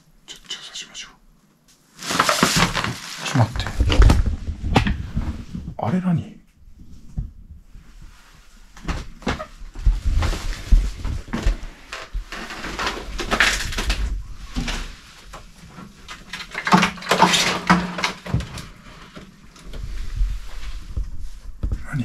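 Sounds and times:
objects knocking and scraping: 0:02.0 - 0:05.8, 0:08.8 - 0:21.9.

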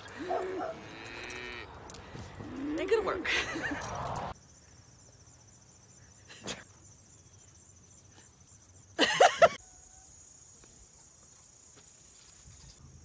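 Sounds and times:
crickets chirring: 0:00.0 - 0:13.0
woman laughing: 0:03.2 - 0:04.1, 0:09.0 - 0:09.6.

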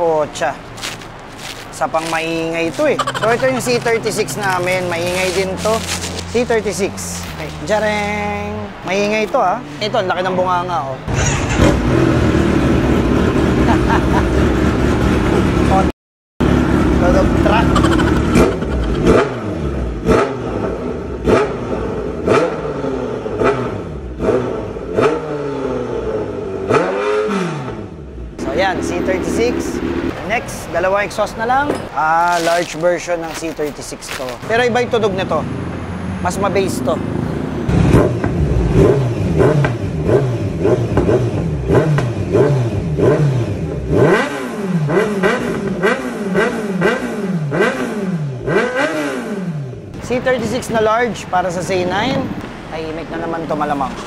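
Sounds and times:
motorcycle engine revving: 0:00.8 - 0:10.1, 0:11.0 - 0:31.2, 0:34.5 - 0:52.4.

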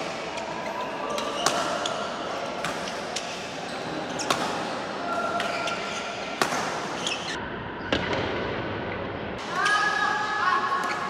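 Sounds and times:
rackets hitting shuttlecock: 0:00.0 - 0:03.5, 0:04.1 - 0:07.3
shoe squeaks: 0:05.0 - 0:06.3, 0:07.0 - 0:07.4.

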